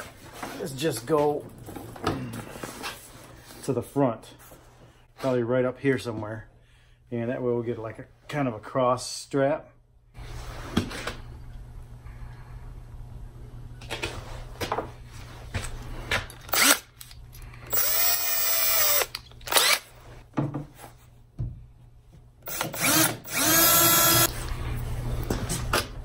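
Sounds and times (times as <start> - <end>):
cordless drill motor spinning: 16.5 - 16.9, 17.6 - 20.0, 22.4 - 24.4.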